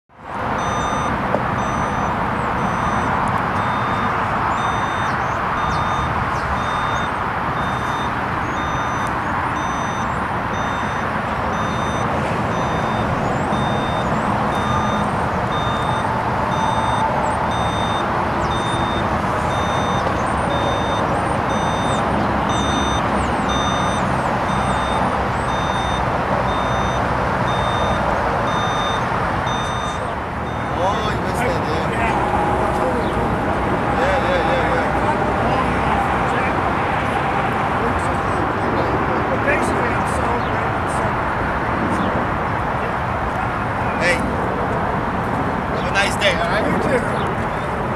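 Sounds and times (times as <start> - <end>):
diesel machinery and truck traffic: 0.1 - 47.9
reversing alarm beeping: 0.5 - 36.6
high-pitched electronic beep: 0.6 - 31.4.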